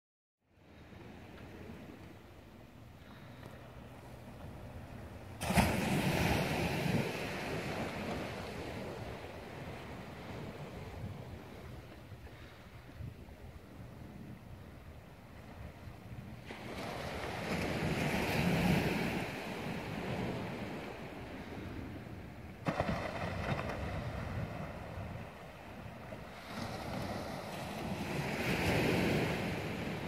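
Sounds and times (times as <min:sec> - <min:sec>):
wind on microphone: 0:04.0 - 0:30.0
waves breaking on rocks: 0:05.4 - 0:10.8, 0:16.5 - 0:21.0, 0:22.6 - 0:30.0.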